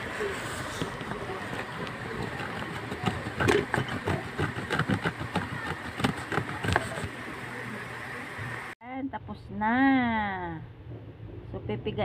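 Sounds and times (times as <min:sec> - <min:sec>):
eggplant rasping on metal grater: 0:00.6 - 0:07.2.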